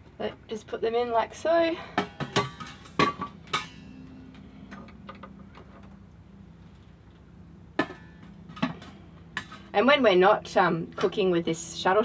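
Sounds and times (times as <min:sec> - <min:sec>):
faint steady hum: 0:00.0 - 0:12.0
metal pot clinking: 0:02.0 - 0:04.0
sharp metal clank: 0:02.0 - 0:04.2.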